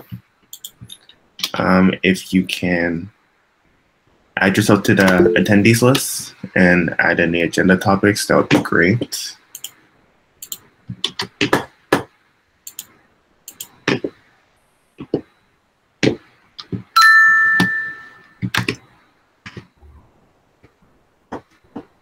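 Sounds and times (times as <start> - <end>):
two-tone chime: 5.2 - 5.6, 17.0 - 18.4.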